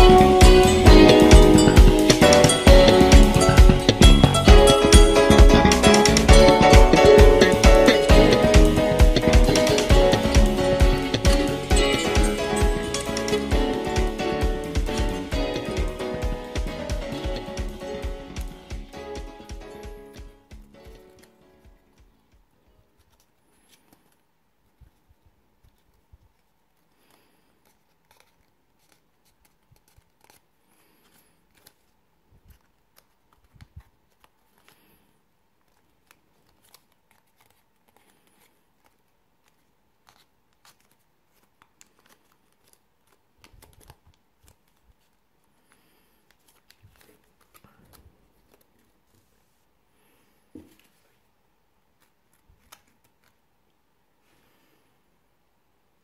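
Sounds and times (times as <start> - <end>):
paper crinkling and rustling: 20.1 - 49.6, 51.9 - 53.4.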